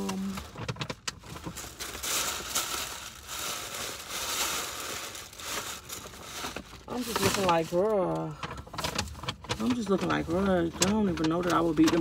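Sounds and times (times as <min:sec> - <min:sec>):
rustling and crinkling: 0:00.0 - 0:12.0.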